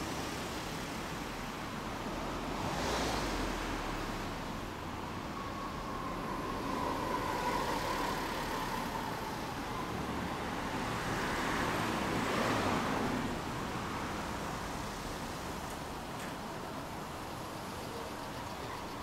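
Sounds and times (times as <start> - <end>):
traffic rumble: 0.0 - 19.0
vehicle passing: 5.5 - 13.5.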